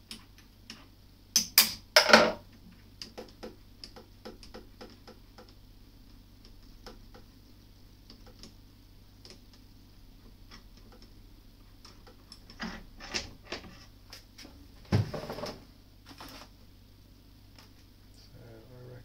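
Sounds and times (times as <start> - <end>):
slow regular ticking: 2.5 - 12.6.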